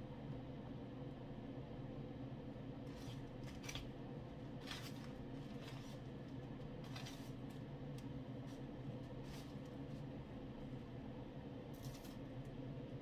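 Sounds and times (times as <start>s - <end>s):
air fryer humming: 0.0s - 13.0s
bread crumbs rustling in plastic tub: 4.5s - 6.2s.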